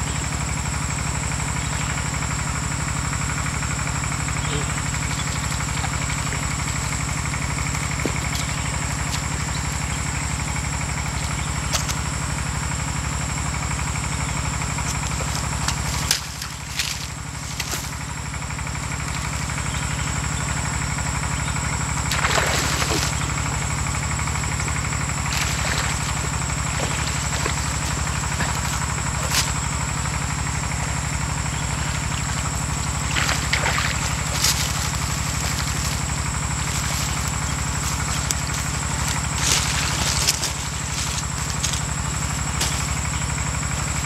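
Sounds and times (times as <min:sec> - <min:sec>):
pulsing mechanical drone: 0:00.0 - 0:44.0.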